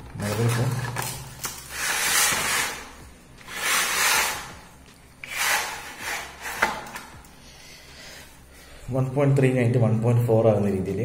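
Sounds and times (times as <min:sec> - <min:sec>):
metal sections sliding with scraping hiss: 0:01.6 - 0:08.5.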